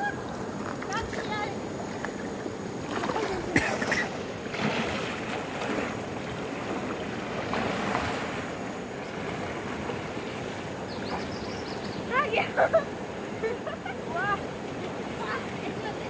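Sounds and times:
swimming splashes: 0:00.0 - 0:11.3
flowing river water: 0:00.0 - 0:16.0.

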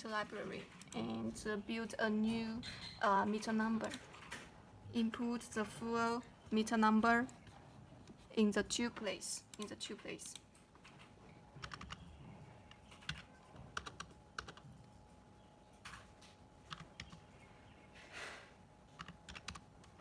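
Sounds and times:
faint keyboard typing: 0:00.1 - 0:04.5, 0:07.2 - 0:17.5, 0:18.8 - 0:20.0.

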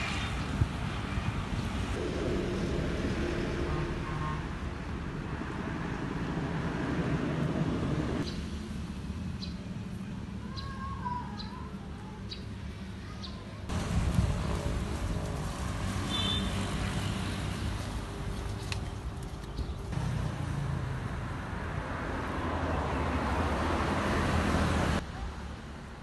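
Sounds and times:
wind rumble: 0:00.0 - 0:09.0, 0:13.7 - 0:20.2
distant road noise: 0:00.0 - 0:26.0.

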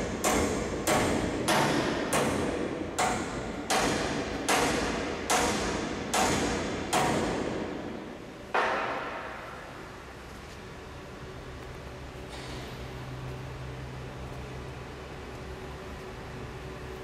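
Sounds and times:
hammer striking metal: 0:00.0 - 0:09.8.

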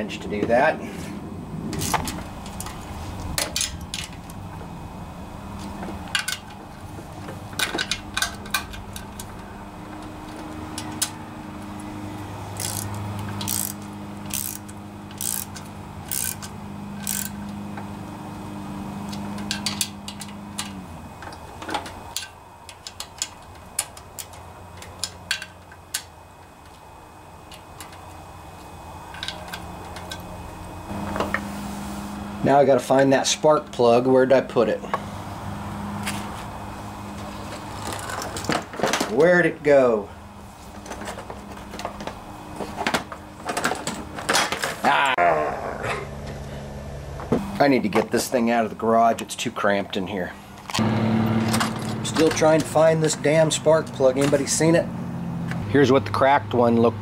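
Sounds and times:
steady low hum: 0:00.0 - 0:57.0
socket wrench ratchet clicking: 0:12.6 - 0:17.4.

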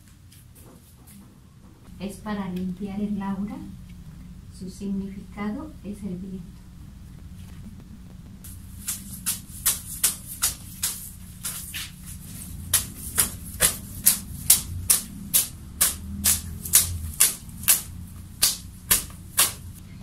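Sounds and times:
leafy herb swats on body: 0:08.4 - 0:19.8.

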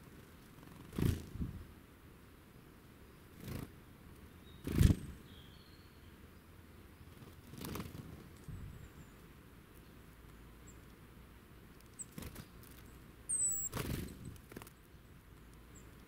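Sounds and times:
birds rustling in dry leaves: 0:07.1 - 0:16.0
thin high bird call: 0:13.3 - 0:13.8.

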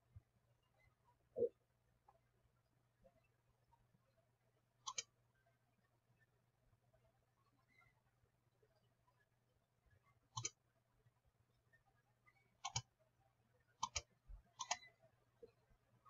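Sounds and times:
faint low hum: 0:00.0 - 0:16.0
computer mouse clicking: 0:04.9 - 0:05.1, 0:10.4 - 0:10.6, 0:12.6 - 0:12.9, 0:13.8 - 0:14.9.

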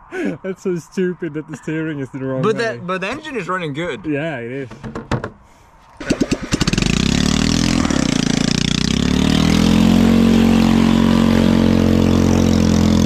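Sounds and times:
small engine revving: 0:06.0 - 0:13.0.

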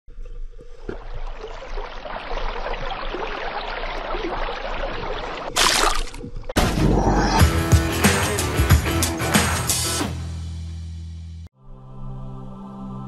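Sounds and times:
music: 0:06.6 - 0:13.0.

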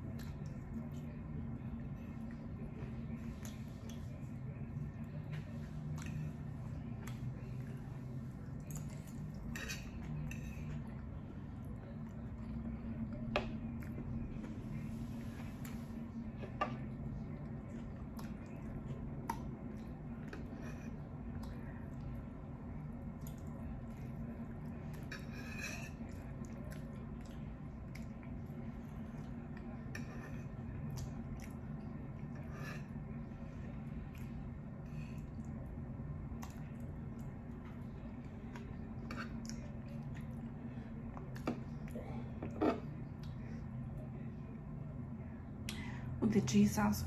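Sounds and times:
steady low hum: 0:00.0 - 0:47.0
fork scraping a plate: 0:09.5 - 0:10.8, 0:25.1 - 0:26.2, 0:42.5 - 0:42.9.

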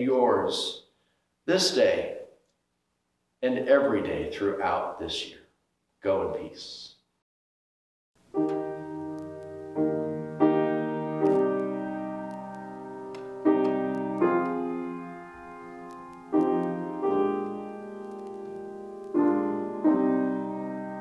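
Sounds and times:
slow piano chords: 0:08.2 - 0:21.0.

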